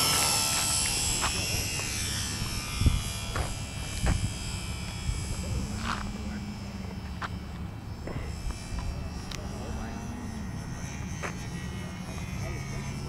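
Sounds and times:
wind on microphone: 0:00.0 - 0:07.1
model airplane motor whining: 0:00.0 - 0:13.0.

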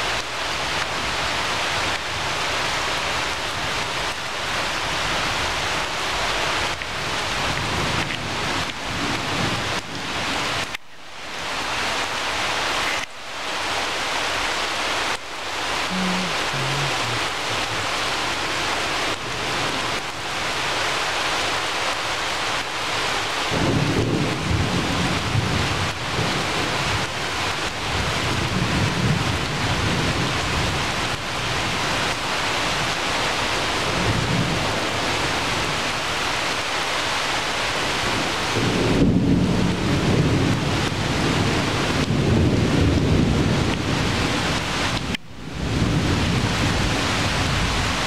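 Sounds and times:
rain falling through foliage: 0:00.0 - 0:48.0
low rumbling: 0:15.8 - 0:18.7.

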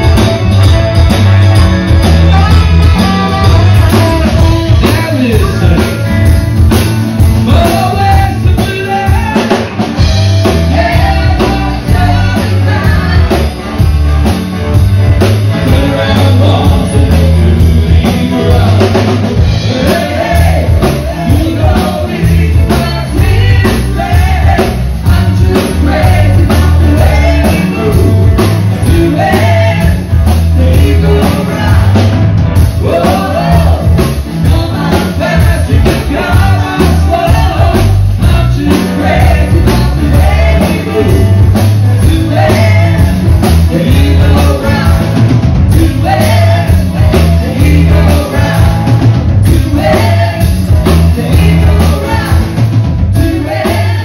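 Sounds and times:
saxophone: 0:00.0 - 0:04.9
live rock band playing: 0:00.0 - 0:54.0
lead and backing vocals: 0:02.0 - 0:06.4, 0:07.2 - 0:14.0, 0:15.2 - 0:54.0.

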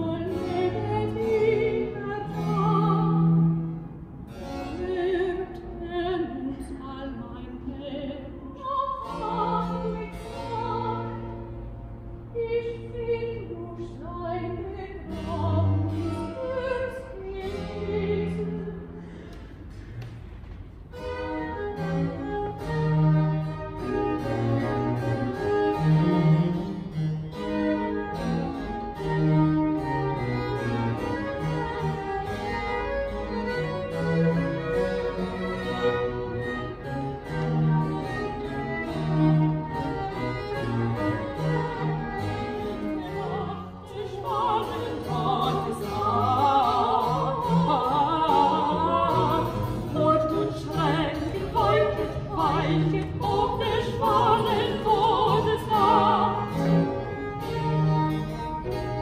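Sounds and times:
women singing classical duet: 0:00.0 - 0:03.8, 0:04.6 - 0:19.1, 0:37.3 - 0:57.3
baroque ensemble playing: 0:00.0 - 0:59.0.

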